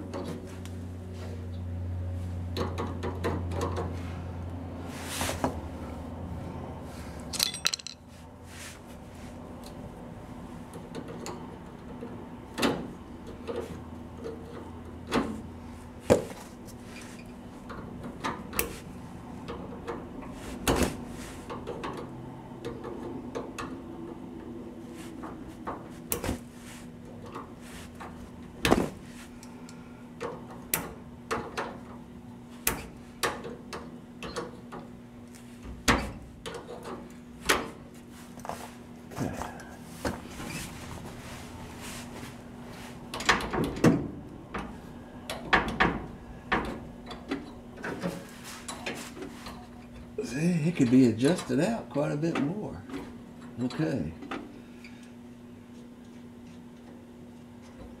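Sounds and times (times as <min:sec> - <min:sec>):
hand tools clicking and clanking: 0:07.2 - 0:08.1.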